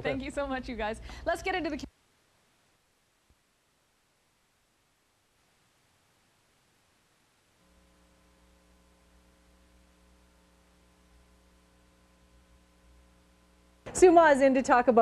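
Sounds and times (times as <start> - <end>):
faint electrical mains hum: 0.0 - 15.0.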